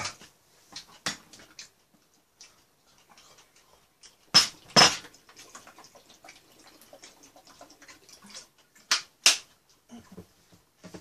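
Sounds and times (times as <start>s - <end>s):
plastic bottle and dishes clattering: 4.3s - 5.1s.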